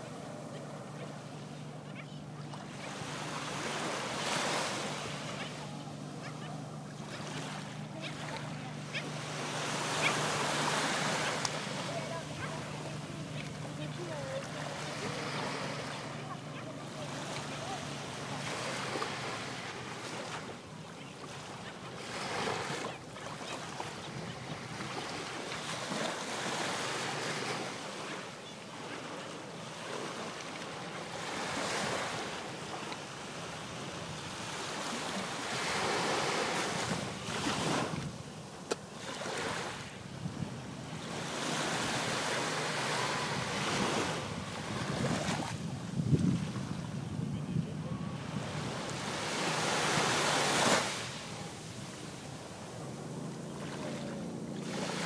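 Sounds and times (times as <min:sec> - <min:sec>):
small waves breaking on beach: 0:00.0 - 0:55.0
wind buffeting microphone: 0:40.0 - 0:40.8, 0:43.2 - 0:49.1.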